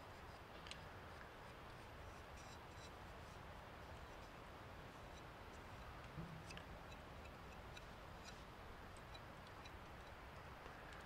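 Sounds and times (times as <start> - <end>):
faint ticks: 5.0 - 11.0.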